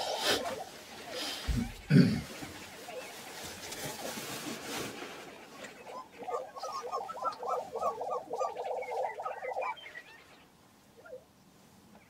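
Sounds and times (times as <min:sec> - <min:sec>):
prairie-chicken bubbling display call: 0:05.8 - 0:10.4
higher yelping bird notes: 0:05.9 - 0:11.2.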